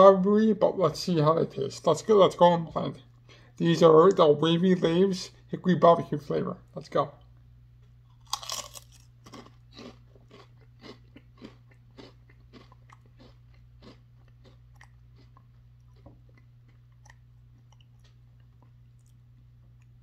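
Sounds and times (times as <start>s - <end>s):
chewing crunches: 8.1s - 20.0s
potato chip crunching: 8.1s - 20.0s.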